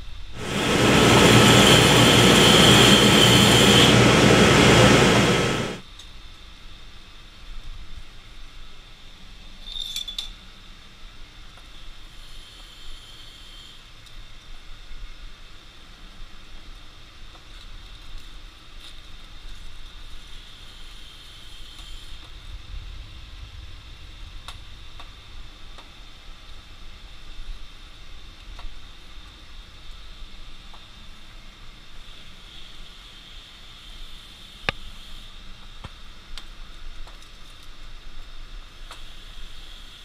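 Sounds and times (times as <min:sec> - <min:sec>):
forge hissing and rumbling: 0:00.3 - 0:05.8.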